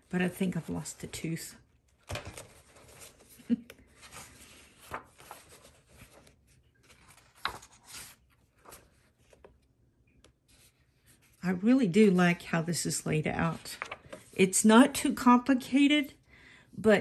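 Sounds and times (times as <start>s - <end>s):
paper pages turning: 1.9s - 11.4s, 13.4s - 14.4s.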